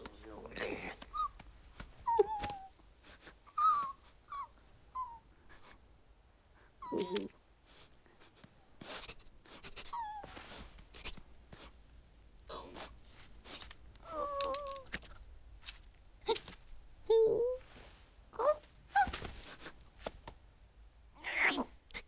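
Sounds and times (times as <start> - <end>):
cartoon squirrels squeaking: 1.1 - 1.4, 2.1 - 5.7, 6.8 - 7.3, 8.8 - 10.3.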